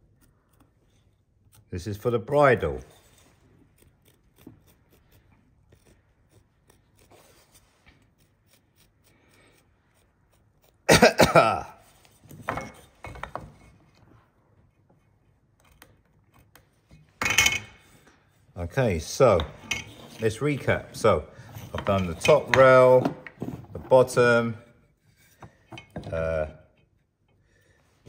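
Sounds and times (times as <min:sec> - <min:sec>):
hand tools scratching timber: 0:00.0 - 0:11.2, 0:18.8 - 0:23.0
man clearing throat: 0:10.9 - 0:11.8
man coughing: 0:10.9 - 0:11.8.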